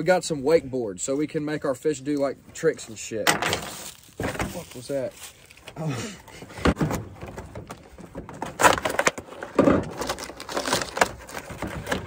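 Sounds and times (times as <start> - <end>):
cardboard box rustling and scraping: 6.6 - 12.0.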